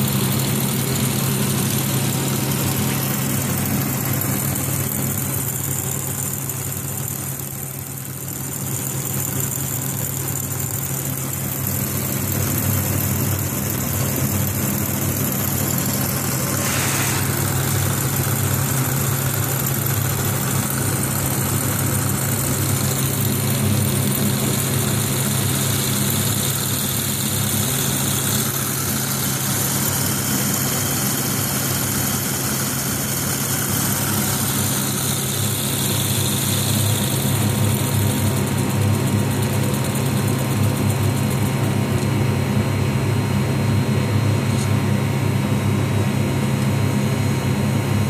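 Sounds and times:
model steam engine running: 0.0s - 42.0s
steam hiss: 16.2s - 20.6s.

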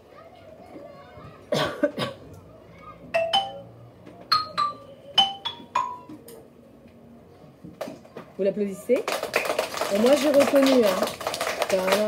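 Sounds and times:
mallet percussion note ringing: 3.2s - 6.2s.

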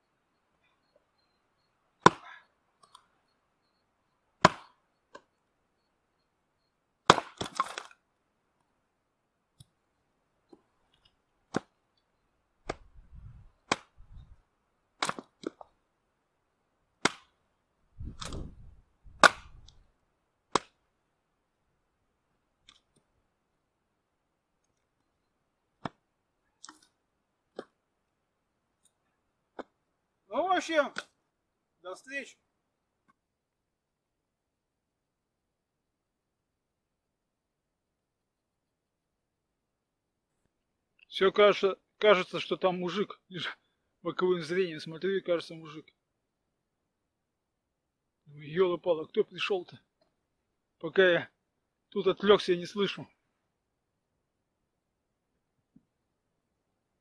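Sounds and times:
axe splitting wood: 2.0s - 2.4s, 4.4s - 5.3s, 7.0s - 8.0s, 13.6s - 14.0s, 15.0s - 15.7s, 17.0s - 17.4s, 19.1s - 19.7s, 20.5s - 20.8s
split wood thudding: 4.4s - 4.8s, 7.1s - 7.9s, 15.0s - 15.6s, 19.1s - 19.7s.

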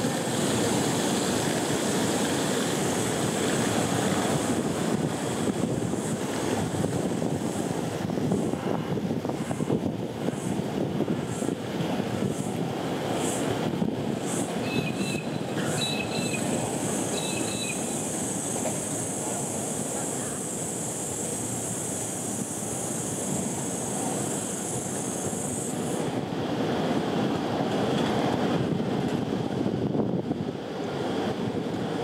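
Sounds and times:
traffic rumble: 0.0s - 31.9s
wind: 0.0s - 32.0s
bird chirps: 14.6s - 16.5s, 17.1s - 18.0s.

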